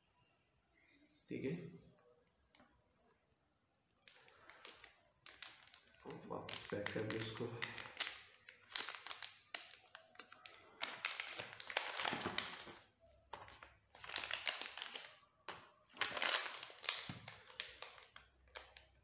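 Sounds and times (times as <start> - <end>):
plastic bags crinkling: 4.0 - 19.0.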